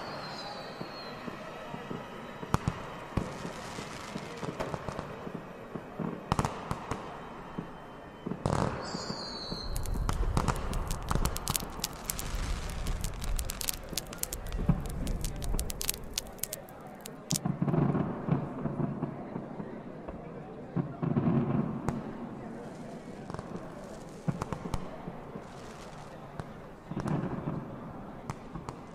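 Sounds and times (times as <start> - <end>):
firework whistle: 0.0 - 5.3, 6.3 - 17.4
fireworks exploding: 2.5 - 5.4, 8.4 - 17.5.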